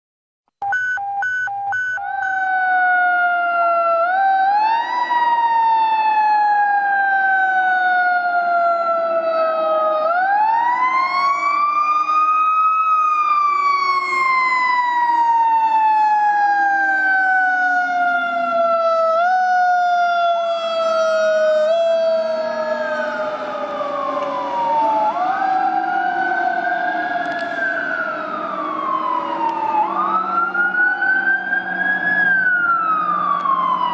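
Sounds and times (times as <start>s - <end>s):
fire engine siren wailing: 0.7s - 33.9s
second siren wailing: 0.7s - 33.9s.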